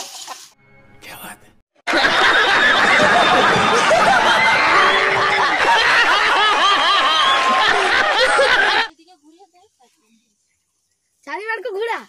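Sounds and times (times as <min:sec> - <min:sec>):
crowd laughing: 0:01.8 - 0:08.9
hands clapping: 0:02.7 - 0:08.9.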